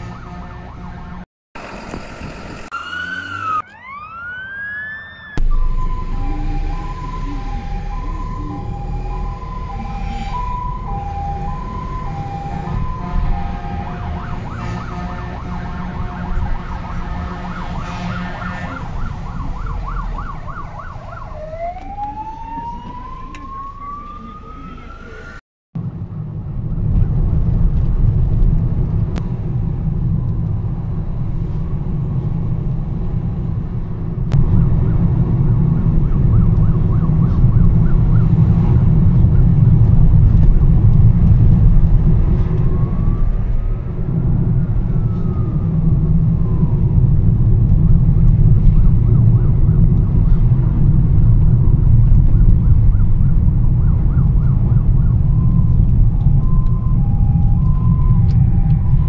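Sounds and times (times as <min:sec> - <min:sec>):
fire engine two-tone horns: 0:00.0 - 0:01.2, 0:05.4 - 0:20.1
warbling siren: 0:00.0 - 0:25.4, 0:34.3 - 0:59.0
car engine and road noise: 0:00.0 - 0:59.0.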